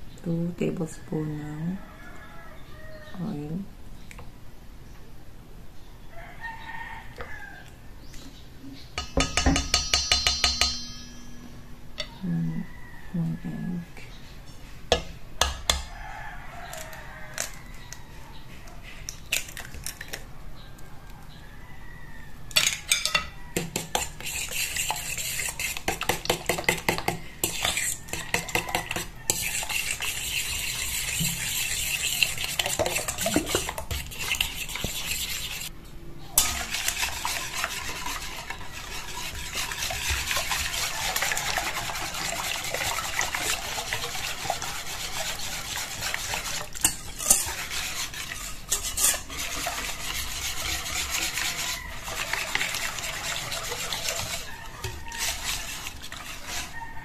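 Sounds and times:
egg cracking on metal bowl: 9.0 - 11.3
fork beating batter in metal bowl: 9.0 - 11.4, 23.6 - 35.7, 36.4 - 56.9.

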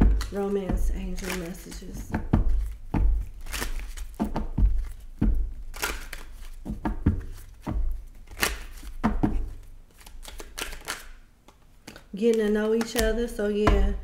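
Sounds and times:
dull thumps: 0.0 - 9.7, 13.6 - 14.0
cards shuffling swishes: 0.0 - 11.2
card edges clicking: 0.0 - 13.8.

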